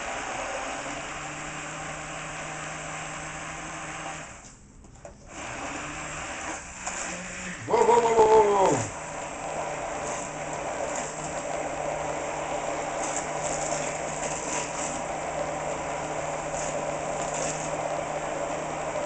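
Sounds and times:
immersion blender motor humming: 0:00.0 - 0:04.4, 0:05.3 - 0:19.0.

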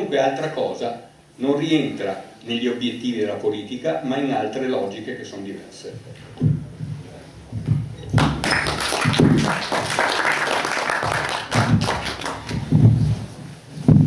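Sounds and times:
low thumps: 0:06.2 - 0:09.5, 0:11.5 - 0:14.0
audience applauding: 0:08.2 - 0:12.7.

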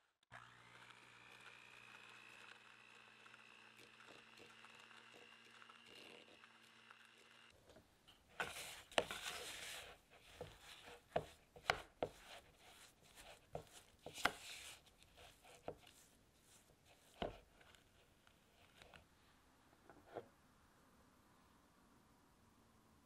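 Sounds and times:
spatula scraping mixing bowl: 0:08.4 - 0:17.7.

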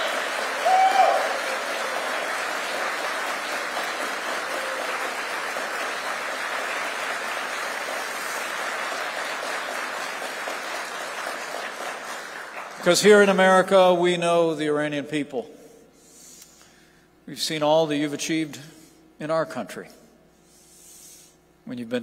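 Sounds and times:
brief cheer: 0:00.0 - 0:02.4
audience applause: 0:00.0 - 0:13.4.

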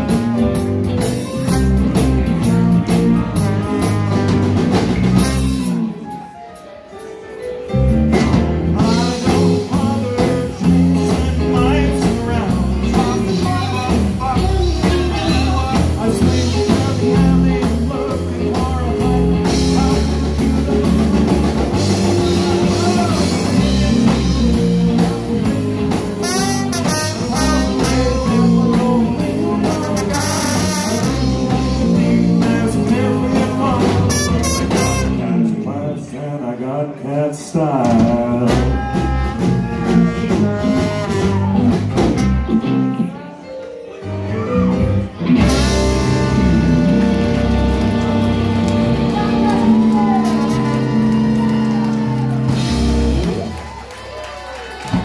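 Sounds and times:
live rockabilly blues band: 0:00.0 - 0:55.0.

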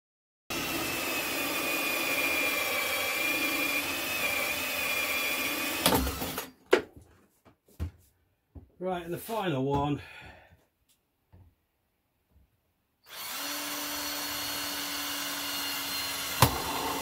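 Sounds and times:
power drill cutting plastic pipe: 0:00.5 - 0:06.6, 0:13.0 - 0:17.0.

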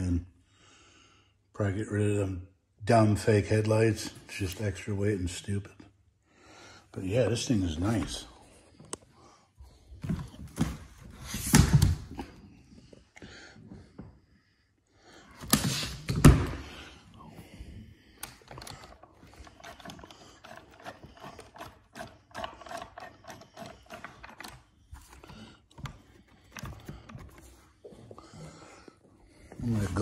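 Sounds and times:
toy truck parts clicking and rattling: 0:18.3 - 0:25.2.

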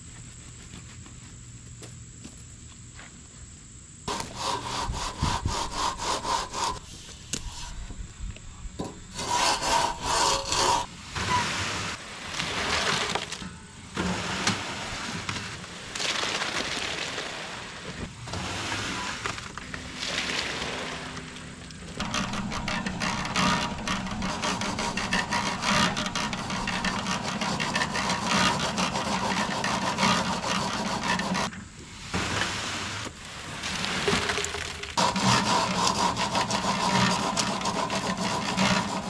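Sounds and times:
hand tool scraping wet concrete: 0:04.1 - 0:08.0, 0:08.8 - 0:13.4, 0:21.9 - 0:31.5, 0:32.3 - 0:39.0.

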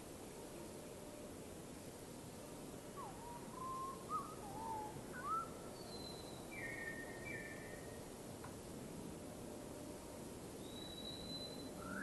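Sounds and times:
steady hiss: 0:00.0 - 0:12.0
songbird whistling: 0:03.0 - 0:07.9, 0:10.6 - 0:12.0.

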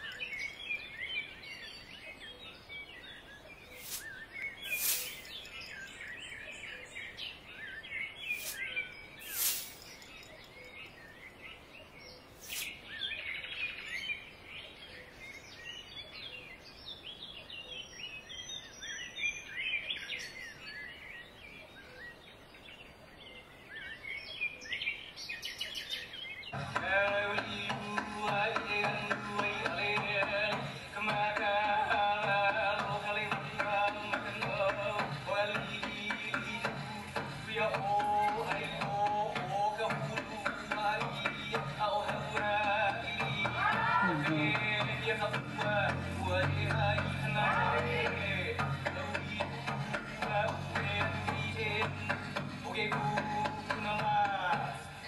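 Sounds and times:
faint outdoor hiss: 0:00.0 - 0:55.0
small birds chirping: 0:00.0 - 0:55.0
music: 0:26.6 - 0:55.0.

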